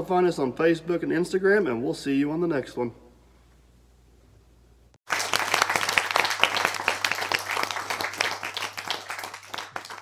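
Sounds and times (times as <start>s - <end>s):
applause: 5.0s - 10.0s.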